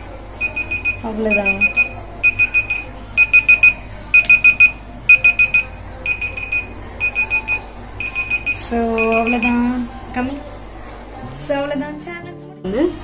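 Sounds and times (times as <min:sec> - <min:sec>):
timer alarm beeping: 0:00.4 - 0:09.6.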